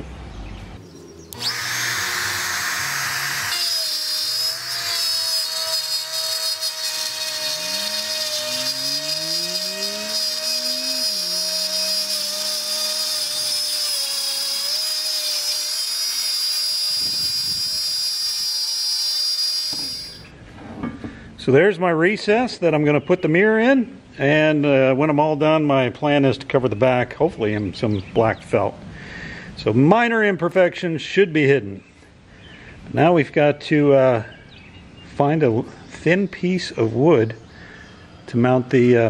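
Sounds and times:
router whining: 0:00.8 - 0:20.3.

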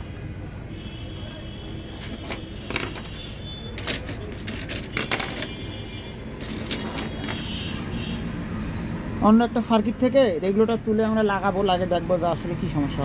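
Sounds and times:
clicks and knocks of tools: 0:02.0 - 0:05.7, 0:06.4 - 0:07.4.

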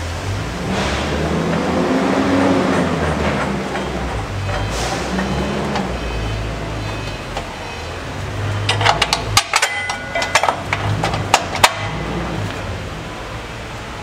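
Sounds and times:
sharp metallic clicks and taps: 0:08.6 - 0:12.0
steel bolts clinking: 0:08.6 - 0:12.0.

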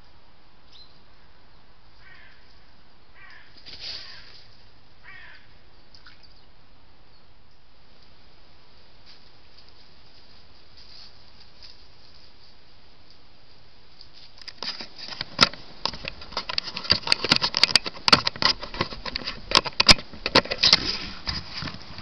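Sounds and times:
faint steady hiss: 0:00.0 - 0:22.0
camera handling clicks and scrapes: 0:14.4 - 0:22.0.

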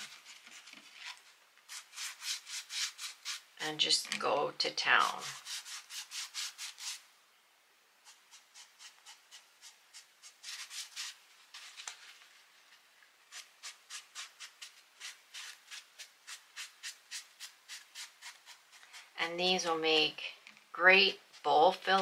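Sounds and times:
sponge brush rubbing fabric: 0:01.7 - 0:03.5, 0:05.0 - 0:07.0, 0:08.0 - 0:11.6, 0:13.3 - 0:19.2.

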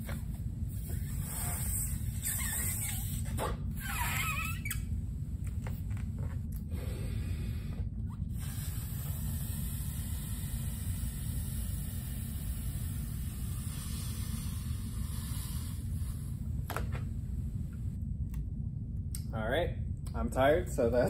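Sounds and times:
low room rumble: 0:00.0 - 0:21.0
breaths blown into balloon: 0:00.7 - 0:04.8, 0:06.7 - 0:16.6.

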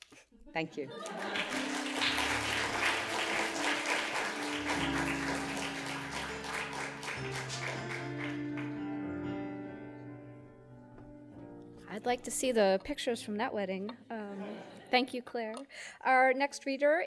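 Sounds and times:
audience applause: 0:01.0 - 0:09.0
instrumental music with held notes: 0:01.2 - 0:12.1.

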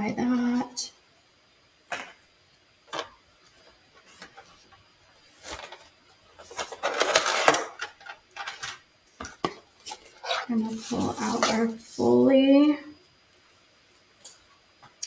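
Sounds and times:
packaging crinkling: 0:05.3 - 0:11.7.

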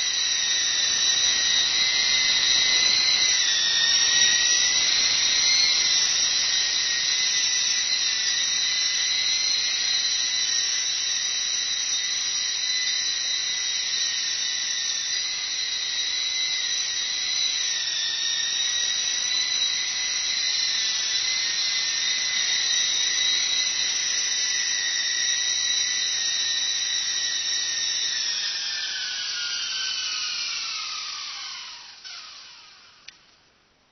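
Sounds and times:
toy helicopter rotors whining: 0:00.0 - 0:33.5.

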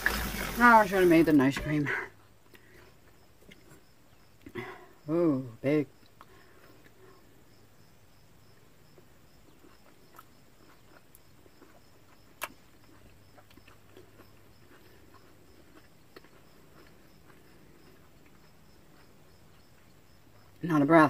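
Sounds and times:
person chewing: 0:02.2 - 0:04.8, 0:06.0 - 0:07.2, 0:08.8 - 0:20.6
wet mouth clicks: 0:12.4 - 0:14.3.

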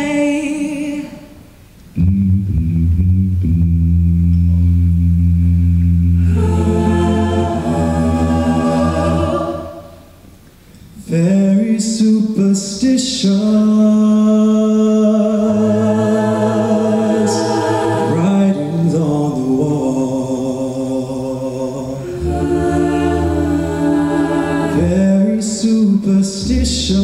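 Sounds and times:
a cappella group singing chords: 0:00.0 - 0:01.5, 0:06.1 - 0:10.4, 0:11.0 - 0:27.0
low bass voice singing: 0:02.0 - 0:09.7, 0:13.2 - 0:27.0.

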